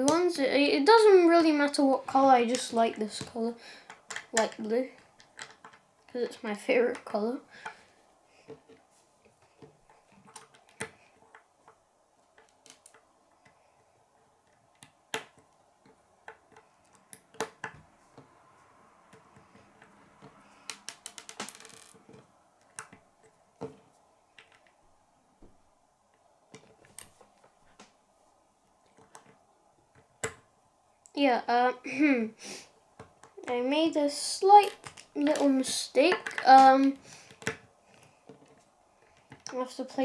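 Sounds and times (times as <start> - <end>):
plastic bricks clicking: 3.9 - 6.1, 9.4 - 13.8, 19.1 - 24.8, 28.8 - 30.5, 34.6 - 39.5.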